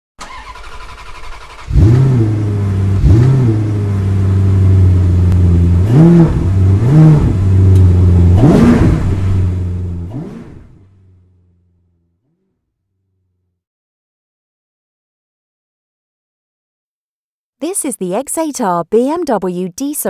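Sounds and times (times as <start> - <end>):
car engine idling and revving: 0.2 - 13.5
car engine starting: 0.2 - 13.5.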